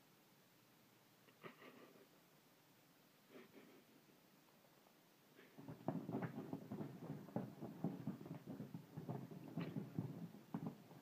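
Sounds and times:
puppy scrabbling on a sofa: 5.6s - 11.0s.

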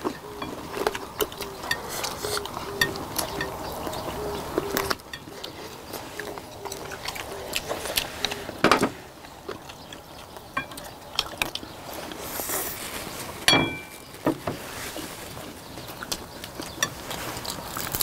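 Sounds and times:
chopsticks clicking on bowls: 0.0s - 3.9s
chewing: 0.0s - 18.0s
ringing clink: 13.5s - 13.9s.

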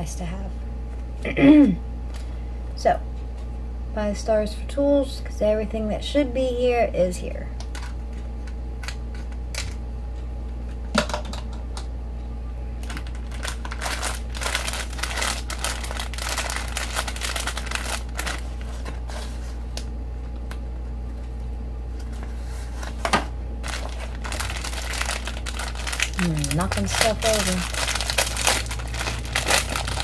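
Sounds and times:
steady low hum: 0.0s - 30.0s
plastic crinkling: 12.8s - 20.6s, 22.1s - 30.0s.

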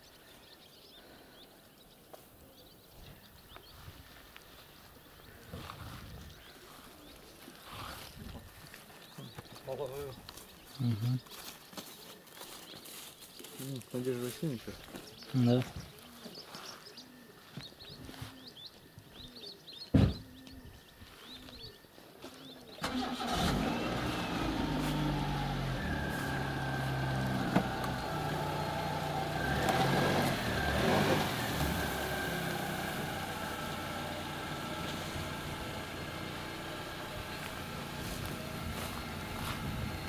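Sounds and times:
car door thump: 19.9s - 20.2s
car engine starting and running: 22.8s - 40.0s.

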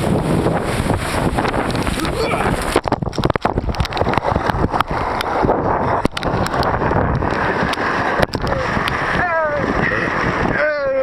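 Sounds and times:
breaking surf: 0.0s - 11.0s
wind buffeting microphone: 0.0s - 11.0s
camera handling crackles: 6.1s - 6.8s.

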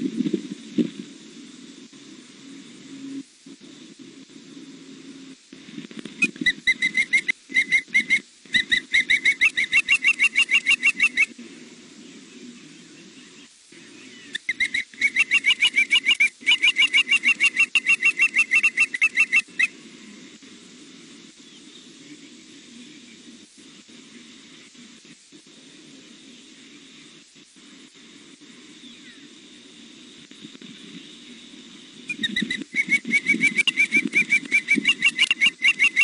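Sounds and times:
low steady hum: 0.0s - 36.0s
osprey whistled chirps: 6.2s - 11.4s, 13.0s - 19.7s, 32.0s - 36.0s.

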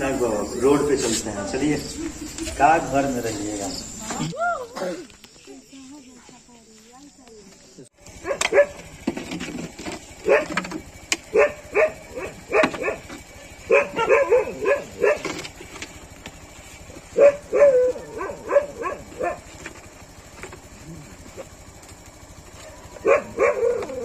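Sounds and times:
dog barking: 8.2s - 8.8s, 10.2s - 10.6s, 11.3s - 15.4s, 17.1s - 19.5s, 22.6s - 24.0s.

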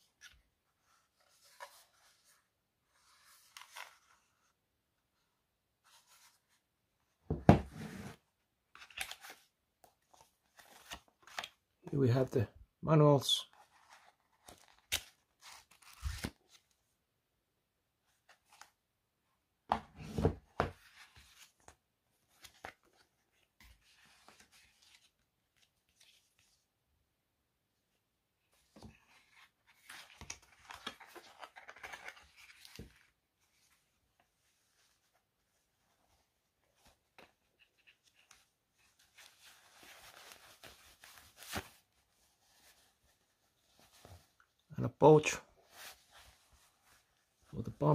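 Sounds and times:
paper rustling and crinkling: 0.1s - 4.5s, 8.7s - 11.6s, 13.5s - 16.8s, 28.6s - 44.6s, 45.6s - 47.6s
cloth pouch rustling: 33.4s - 44.6s, 45.6s - 47.5s.

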